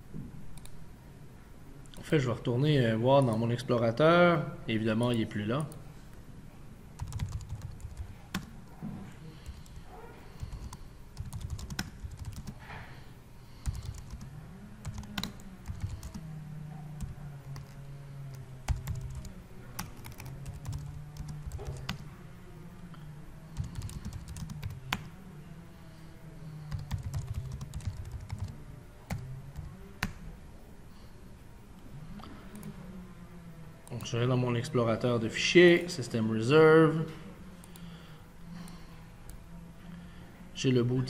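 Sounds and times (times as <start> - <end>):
low background hum: 0.0 - 41.0.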